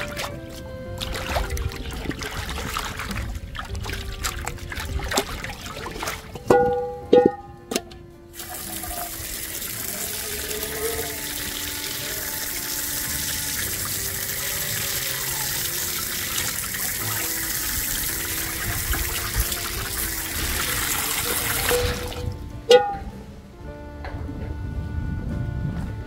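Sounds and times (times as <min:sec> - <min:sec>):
soft background music: 0:00.0 - 0:26.0
water running from a tap: 0:01.0 - 0:06.3, 0:08.4 - 0:22.3.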